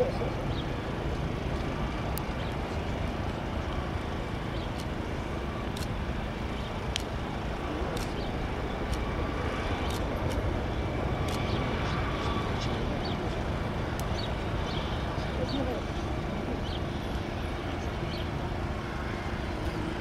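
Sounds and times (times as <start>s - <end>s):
distant jet engines idling: 0.0s - 20.0s
light ticks: 6.9s - 7.1s.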